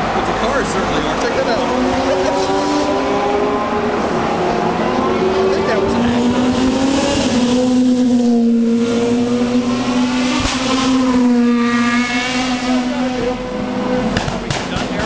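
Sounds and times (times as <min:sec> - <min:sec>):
racing car engines at high revs: 0:00.0 - 0:15.0.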